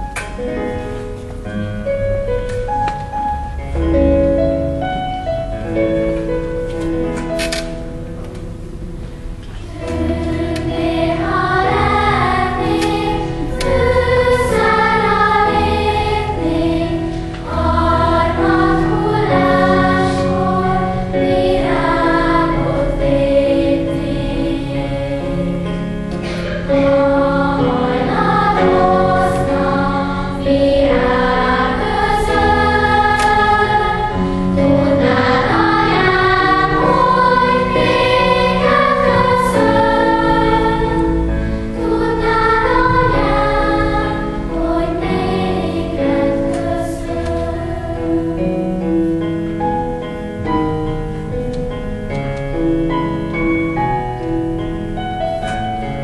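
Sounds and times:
children's choir singing: 8.7 - 49.2.

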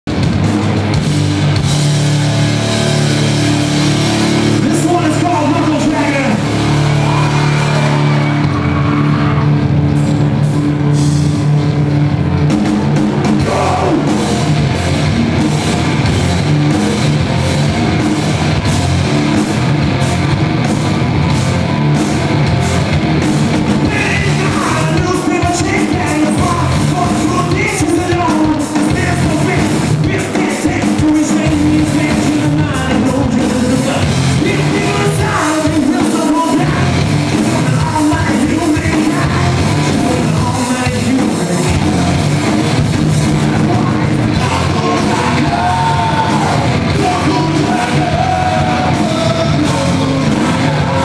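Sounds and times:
drums beating: 0.0 - 51.0
punk rock band playing: 0.0 - 51.0
person singing: 13.3 - 14.2, 23.8 - 42.1, 43.6 - 51.0.

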